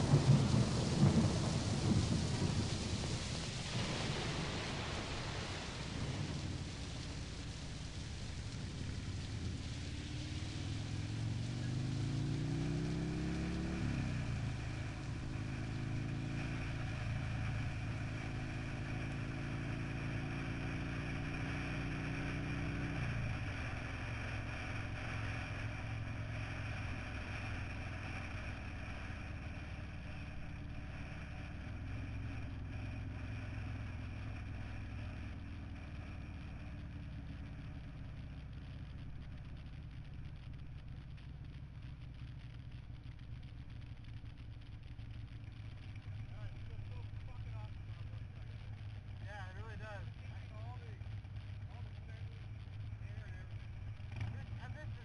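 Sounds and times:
motorcycle engine revving: 0:00.0 - 0:03.0, 0:05.9 - 0:55.0
wind rushing over microphone: 0:00.0 - 0:07.8.

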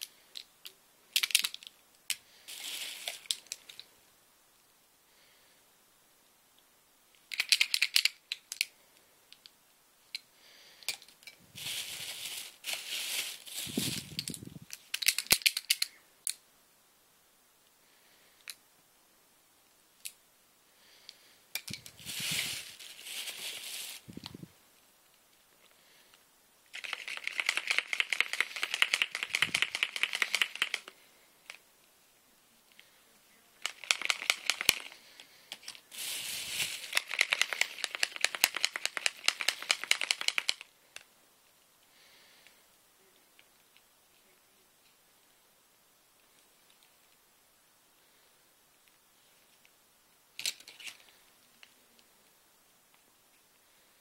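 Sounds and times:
plastic bag crinkling: 0:02.4 - 0:03.8, 0:11.5 - 0:15.8, 0:21.7 - 0:24.4, 0:26.7 - 0:30.9, 0:33.6 - 0:40.7
markers rattling in bag: 0:26.8 - 0:30.9, 0:33.6 - 0:35.0, 0:36.0 - 0:40.6.

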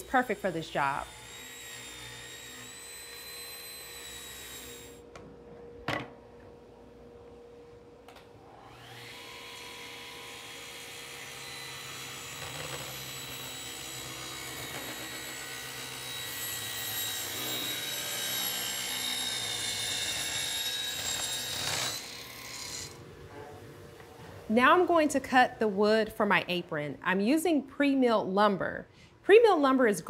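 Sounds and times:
table saw cutting wood: 0:00.0 - 0:05.0, 0:08.5 - 0:23.0.

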